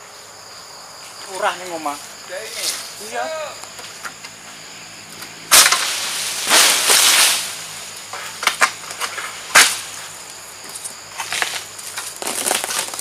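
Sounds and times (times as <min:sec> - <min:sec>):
sickle snapping cut: 0:05.2 - 0:07.5, 0:08.4 - 0:09.8
palm leaves crashing: 0:05.5 - 0:13.0
small cracks: 0:08.1 - 0:13.0.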